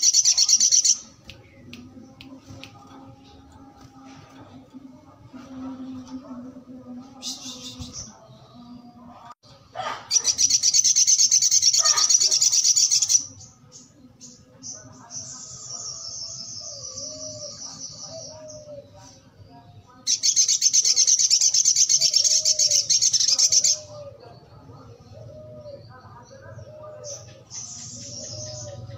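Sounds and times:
bird chattering trills: 0:00.0 - 0:01.6, 0:10.1 - 0:13.9.

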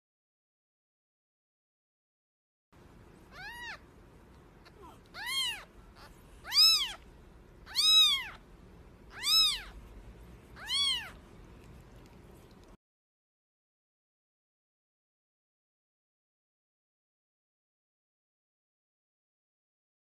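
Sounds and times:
kitten mewing: 0:03.3 - 0:03.9, 0:04.6 - 0:08.5, 0:09.1 - 0:09.8, 0:10.6 - 0:11.2.

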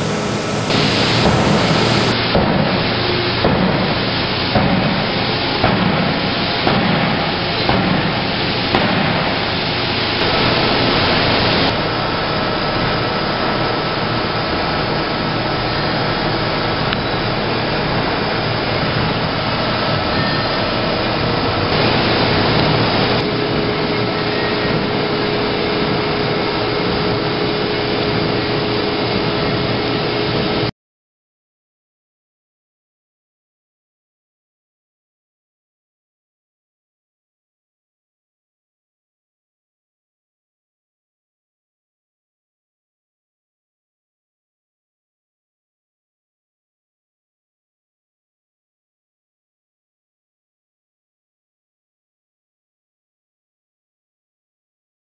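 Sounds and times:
machinery knocks and clanks: 0:00.0 - 0:09.7
factory machinery drone: 0:00.0 - 0:30.7.

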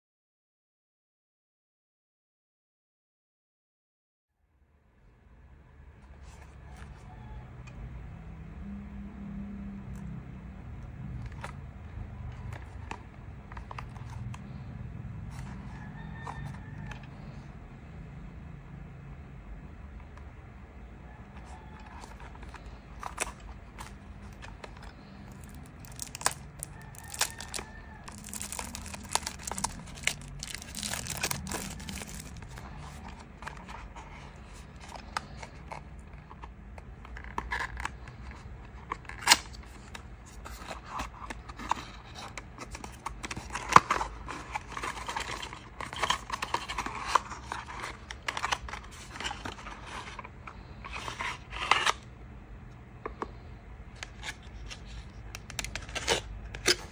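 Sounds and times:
cardboard box opening: 0:21.5 - 0:35.6
plastic shrink wrap crinkling: 0:22.4 - 0:33.0.

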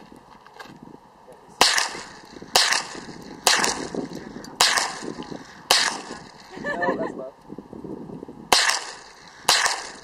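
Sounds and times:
rifle shots with echo: 0:01.6 - 0:06.5, 0:08.5 - 0:10.0.

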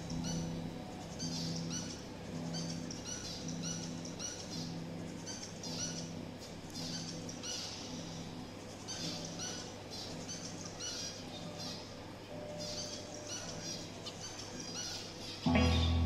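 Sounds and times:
faint steady hum: 0:00.0 - 0:16.0
finches beeping calls: 0:00.0 - 0:16.0
low pulsing tone: 0:15.5 - 0:16.0.

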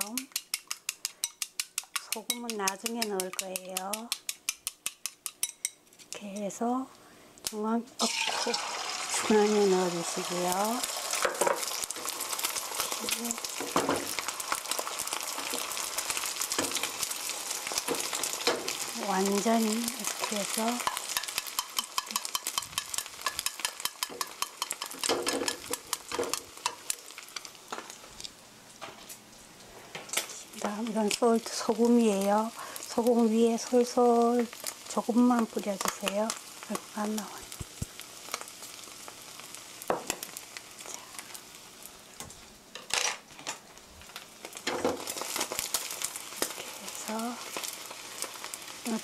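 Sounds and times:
chopsticks stirring in pan: 0:00.0 - 0:06.6, 0:08.0 - 0:27.9
eggs sizzling in hot oil: 0:00.0 - 0:06.6, 0:07.4 - 0:28.4, 0:29.9 - 0:49.0.

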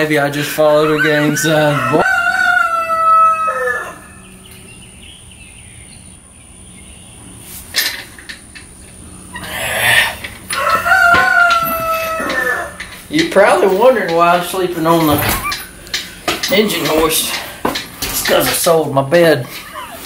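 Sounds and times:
rooster crowing: 0:00.6 - 0:04.4, 0:10.5 - 0:12.9.

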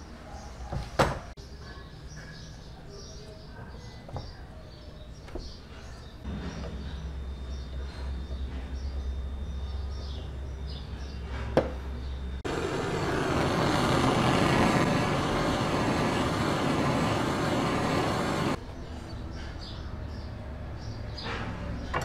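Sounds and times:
heat gun blowing hiss: 0:12.5 - 0:18.6.

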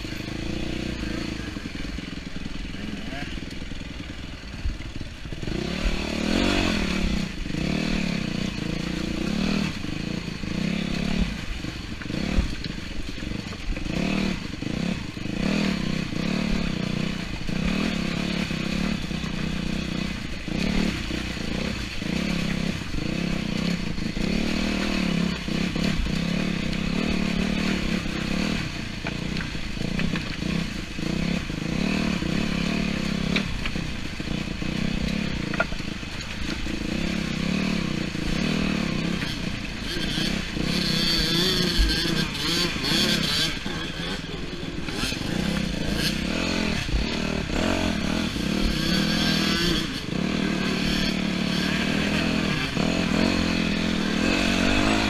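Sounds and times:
dirt bike engine revving: 0:00.0 - 0:55.0
bike rattles and knocks: 0:35.1 - 0:37.2.

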